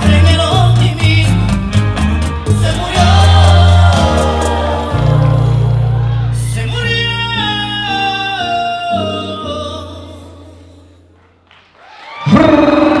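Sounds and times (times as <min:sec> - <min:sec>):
person singing: 0:02.4 - 0:10.8.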